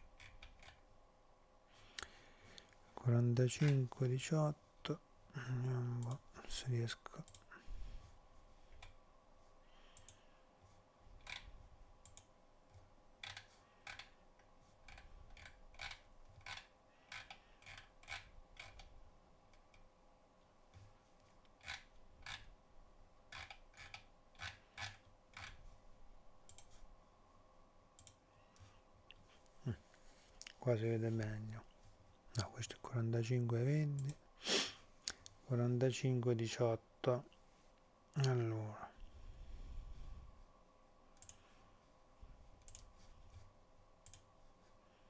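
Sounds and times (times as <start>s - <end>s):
faint steady hum: 0.0s - 45.0s
computer mouse clicking: 0.2s - 0.8s, 7.2s - 7.5s, 9.9s - 10.2s, 11.2s - 14.2s, 14.9s - 18.9s, 26.5s - 26.8s, 28.0s - 28.7s, 41.2s - 41.4s, 42.6s - 43.0s, 44.0s - 44.3s.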